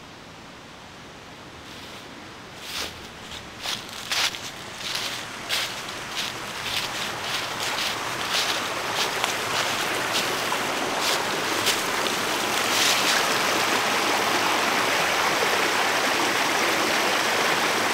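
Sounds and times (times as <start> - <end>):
stream rushing: 0.2 - 17.9
footsteps on trail: 1.7 - 13.4.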